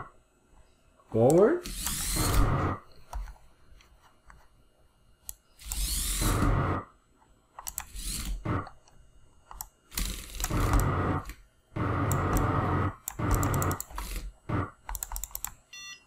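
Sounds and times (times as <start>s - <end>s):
servo motors whirring: 1.6s - 2.8s, 5.6s - 6.8s, 7.7s - 8.7s, 10.0s - 14.7s
mouse clicks: 14.9s - 15.6s.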